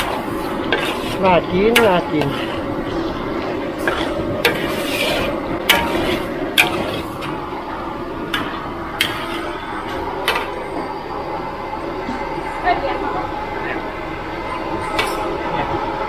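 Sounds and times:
metal spatula stirring in wok: 0:00.0 - 0:10.6
steady rushing noise: 0:00.0 - 0:16.0
spatula clanking against pan: 0:05.7 - 0:07.0.

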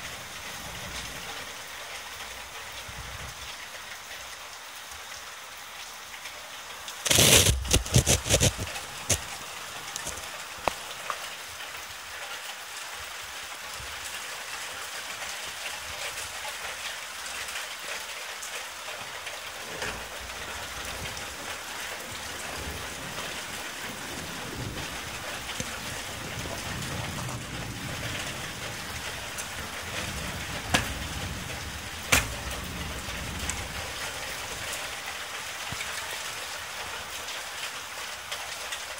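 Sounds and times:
steady rain: 0:00.0 - 0:38.9
low thunder rumble: 0:19.6 - 0:35.0
thunder crack: 0:22.1 - 0:34.8.

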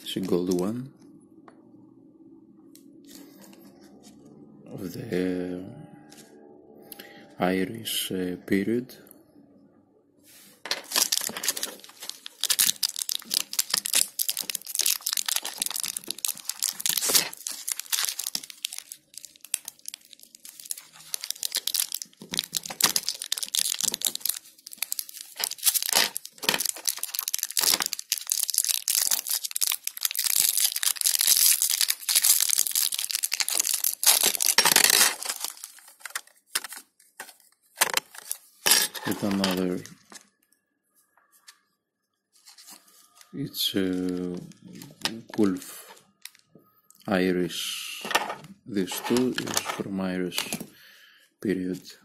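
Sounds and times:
plastic packaging crinkling and tearing: 0:10.8 - 0:40.3, 0:42.4 - 0:46.5, 0:48.0 - 0:50.6.

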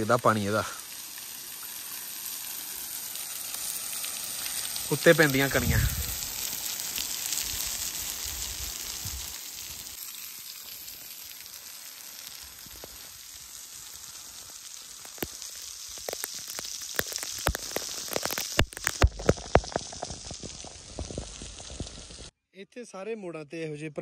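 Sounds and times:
waterfall splashing onto rocks: 0:00.0 - 0:22.3
spray drops ticking: 0:10.2 - 0:22.3.

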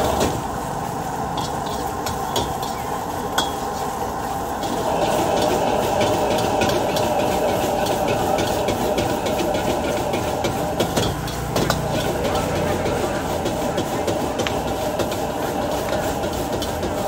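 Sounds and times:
food sizzling: 0:00.0 - 0:17.0
gas burner rushing: 0:00.0 - 0:17.0
ladle scraping a wok: 0:01.2 - 0:17.0.

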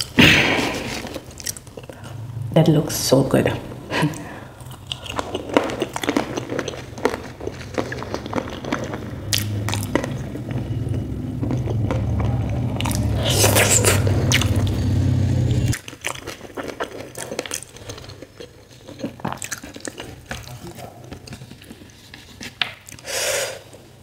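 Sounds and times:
person chewing food: 0:00.0 - 0:02.3, 0:04.0 - 0:23.8
low steady hum: 0:00.0 - 0:15.8.

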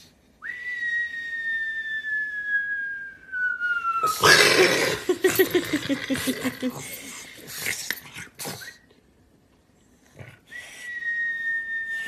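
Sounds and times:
dog whining: 0:04.0 - 0:07.3.

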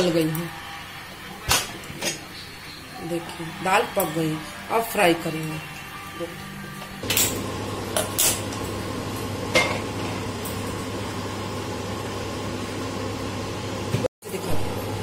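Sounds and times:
gas burner flame rushing: 0:07.0 - 0:15.0.

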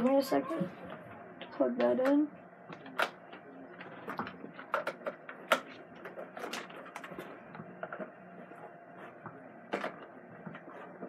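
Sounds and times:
faint steady hum: 0:00.0 - 0:11.0
cable clicking and rustling: 0:00.9 - 0:08.2.

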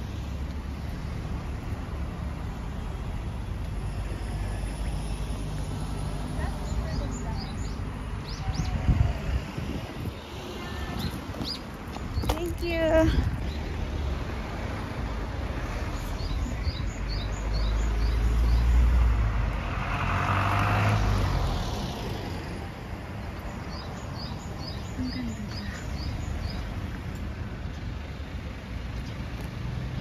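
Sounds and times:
car passing on road: 0:00.0 - 0:12.2, 0:13.4 - 0:30.0
small bird singing: 0:06.5 - 0:08.9, 0:15.9 - 0:18.8, 0:23.4 - 0:26.8.

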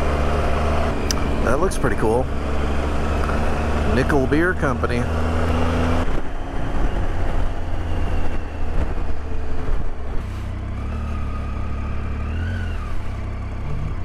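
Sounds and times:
motorcycle running: 0:00.0 - 0:14.0
wind buffeting microphone: 0:05.2 - 0:10.6.

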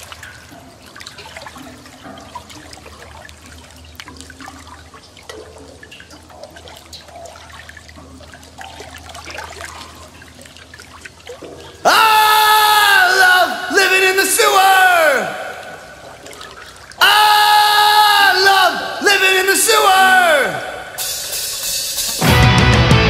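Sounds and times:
bubbling splashes: 0:00.0 - 0:11.9, 0:15.3 - 0:17.0.

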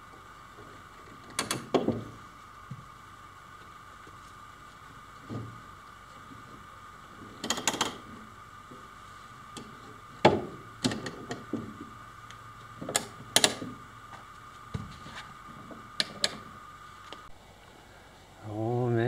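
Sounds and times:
faint high hum: 0:00.0 - 0:19.0
metal clamps clicking and knocking: 0:07.4 - 0:08.0.

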